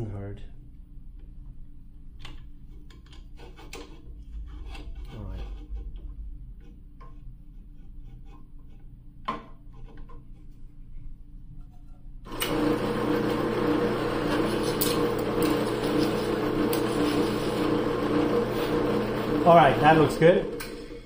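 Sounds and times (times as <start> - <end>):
drill press running: 12.3 - 21.0.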